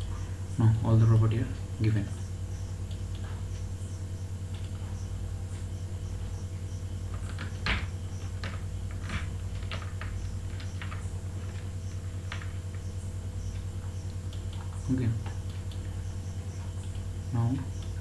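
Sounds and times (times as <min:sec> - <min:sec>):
steady low hum: 0:00.0 - 0:18.0
computer mouse clicks: 0:13.5 - 0:15.9.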